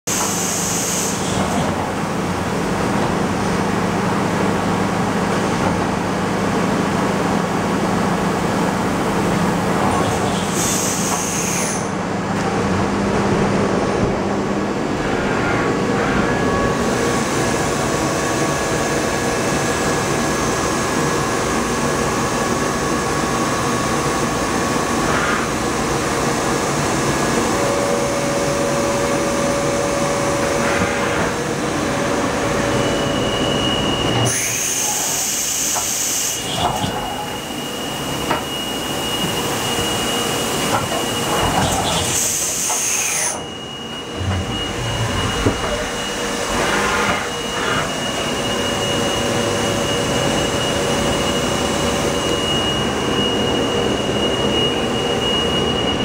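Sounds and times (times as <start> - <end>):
machining center drone: 43.3 - 56.0
faint whining tones: 43.4 - 49.3.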